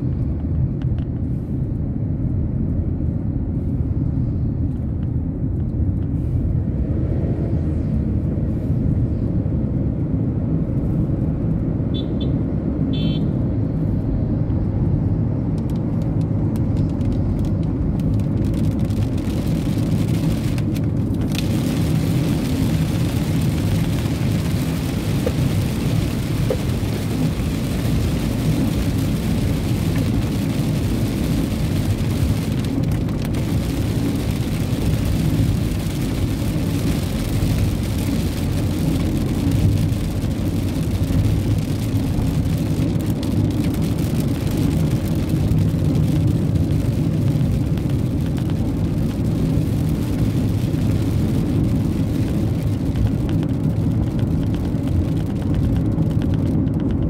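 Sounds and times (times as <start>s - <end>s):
car driving on wet road: 0.0s - 57.0s
rain on car: 14.3s - 57.0s.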